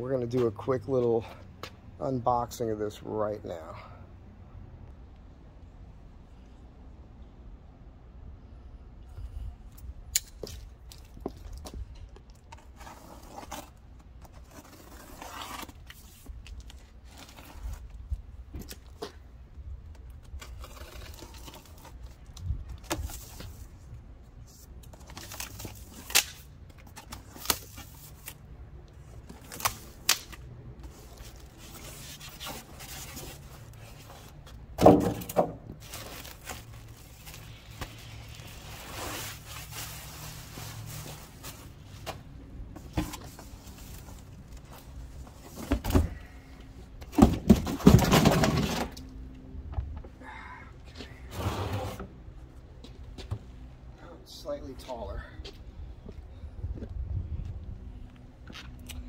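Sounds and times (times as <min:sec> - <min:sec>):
packaging rustling and scraping: 0:12.4 - 0:18.0, 0:30.8 - 0:34.6, 0:35.8 - 0:42.2.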